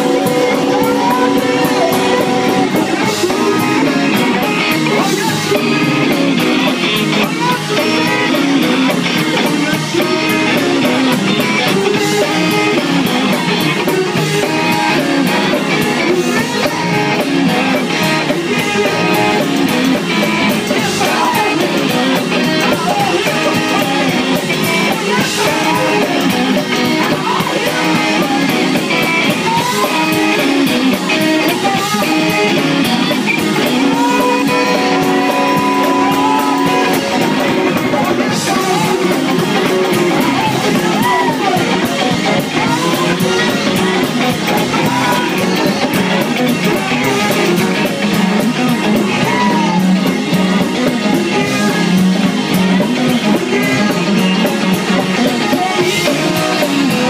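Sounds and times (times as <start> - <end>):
gospel church band music: 0.0 - 57.0
voices singing: 0.0 - 57.0.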